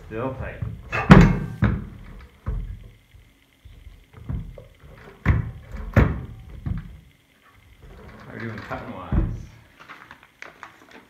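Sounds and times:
reel mower thunks and knocks: 0:00.4 - 0:02.8, 0:08.4 - 0:10.0.

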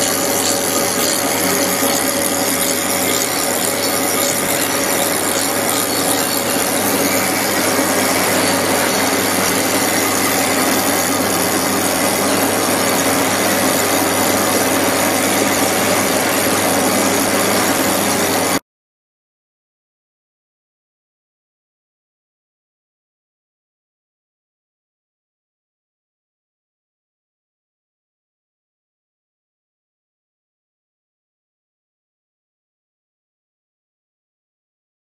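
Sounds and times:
lathe tool scraping metal: 0:00.0 - 0:18.6
low machine hum: 0:00.0 - 0:18.6.

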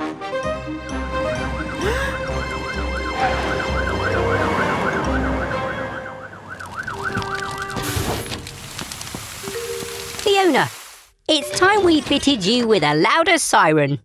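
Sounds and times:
engines rumbling: 0:00.7 - 0:09.0
cartoon fire-truck siren wailing: 0:01.3 - 0:07.8.

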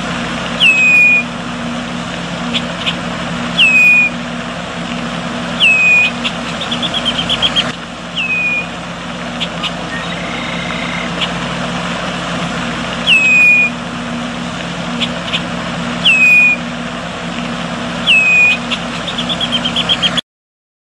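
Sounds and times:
low hum and hiss: 0:00.0 - 0:20.1
bird whistling calls: 0:00.6 - 0:01.3, 0:02.5 - 0:04.2, 0:05.5 - 0:11.4, 0:13.0 - 0:13.8, 0:15.0 - 0:16.7, 0:18.0 - 0:20.2
bird chips: 0:05.6 - 0:08.7, 0:18.1 - 0:20.2.

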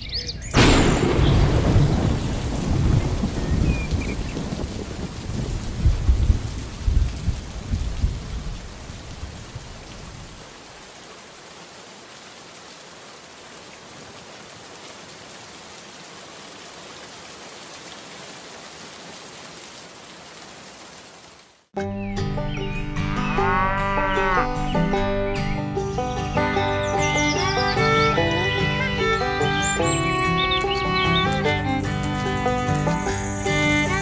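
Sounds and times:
thunder rumbling: 0:00.6 - 0:09.8
steady rain: 0:00.6 - 0:21.7, 0:25.9 - 0:34.0.

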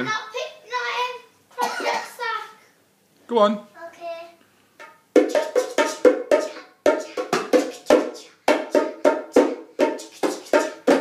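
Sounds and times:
bongos played by hand: 0:04.8 - 0:11.0.

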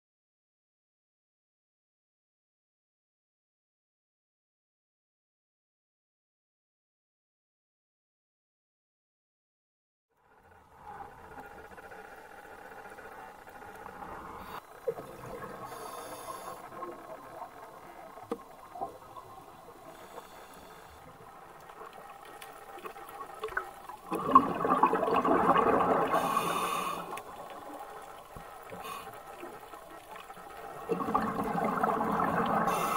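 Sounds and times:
faint underwater water noise: 0:10.2 - 0:32.9
bubbling water: 0:12.8 - 0:20.0, 0:21.1 - 0:32.9.

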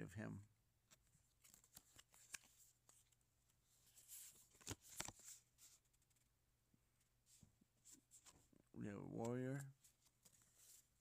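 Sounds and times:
card sliding rustle: 0:00.9 - 0:06.2, 0:09.2 - 0:11.0
cards clicking: 0:01.4 - 0:02.6.

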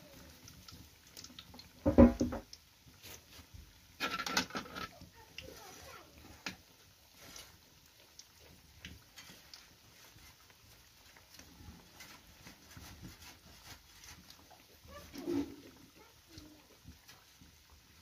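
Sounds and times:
dough sizzling in hot oil: 0:00.0 - 0:18.0
small pops and ticks: 0:00.3 - 0:02.7, 0:06.4 - 0:06.8, 0:07.9 - 0:09.7.

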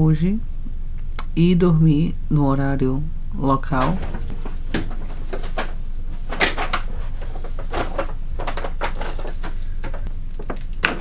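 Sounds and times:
steady low hum: 0:00.0 - 0:11.0
door shutting: 0:03.7 - 0:11.0
paper bag rustling: 0:03.8 - 0:11.0.

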